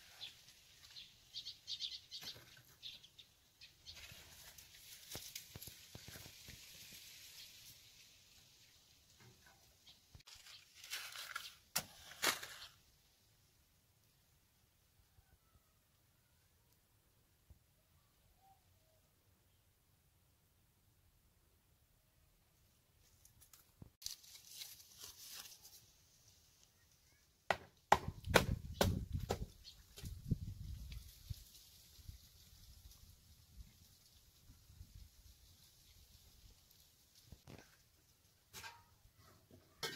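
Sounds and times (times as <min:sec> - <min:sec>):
paper rustling: 0:10.2 - 0:12.8, 0:23.1 - 0:25.9
hatchet chopping kindling: 0:27.5 - 0:29.5.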